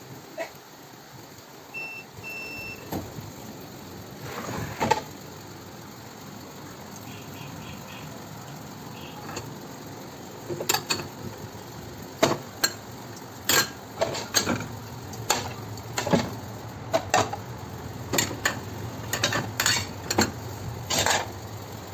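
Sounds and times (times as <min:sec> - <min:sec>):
ceramic plates clattering: 0:13.5 - 0:14.7, 0:18.1 - 0:21.3.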